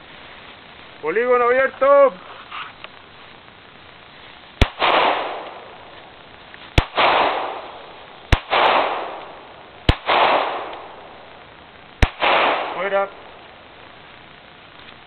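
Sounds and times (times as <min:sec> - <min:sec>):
pistol shots with echo: 0:04.6 - 0:05.8, 0:06.8 - 0:11.1, 0:12.0 - 0:13.3.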